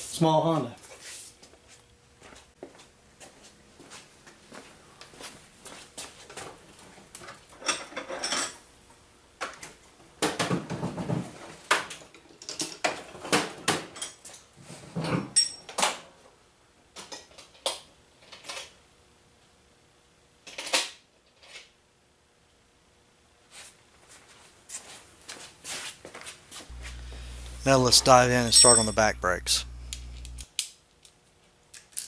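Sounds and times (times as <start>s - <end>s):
hand tools and metal parts clinking: 27.6s - 29.6s, 31.7s - 32.0s.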